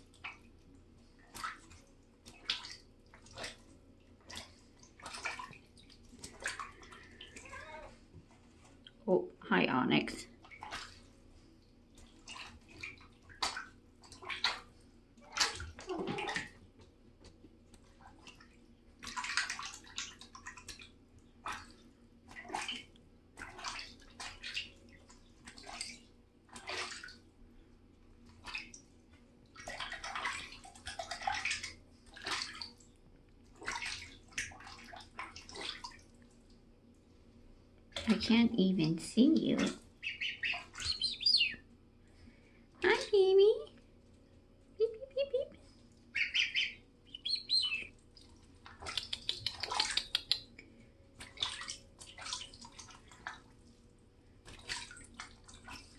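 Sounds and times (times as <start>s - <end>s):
goslings splashing in water: 0.1s - 8.0s, 10.2s - 11.2s, 11.9s - 16.8s, 17.8s - 27.3s, 28.2s - 32.8s, 33.4s - 36.2s, 39.4s - 41.7s, 46.0s - 50.5s, 51.2s - 53.7s, 54.4s - 55.9s.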